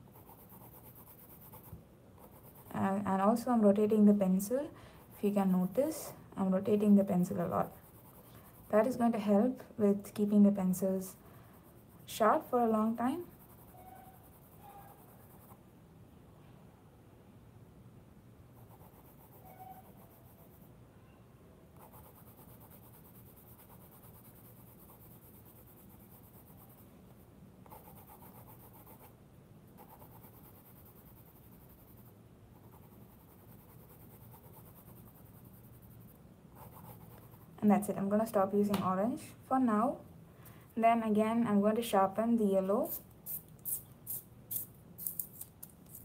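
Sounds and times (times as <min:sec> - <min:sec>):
colored pencil scratching on paper: 0:00.0 - 0:15.6, 0:18.6 - 0:20.7, 0:21.8 - 0:29.1, 0:29.7 - 0:37.9.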